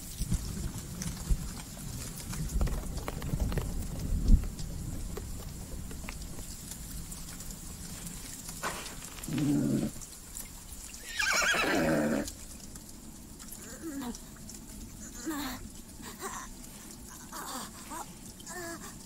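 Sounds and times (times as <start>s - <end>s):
horse groan: 9.2s - 10.0s, 11.1s - 12.3s
horse whinny: 11.0s - 12.3s.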